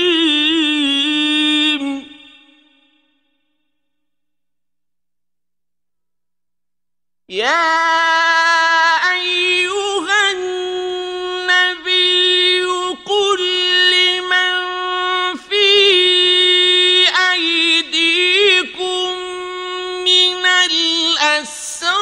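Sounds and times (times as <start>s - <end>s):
man chanting melodically: 7.3s - 22.0s.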